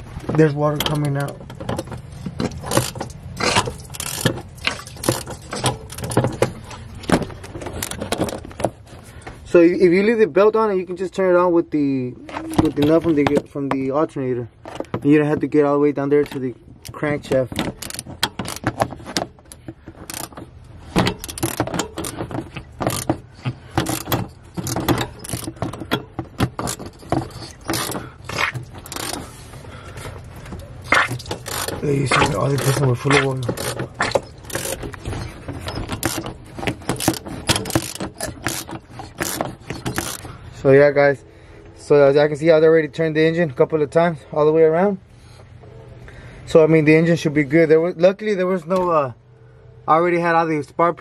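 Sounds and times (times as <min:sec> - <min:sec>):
engine turned by hand rattling: 0:00.0 - 0:09.3, 0:16.2 - 0:40.8
wrench clicks and scrapes: 0:00.8 - 0:08.7, 0:16.3 - 0:29.5, 0:30.5 - 0:40.4.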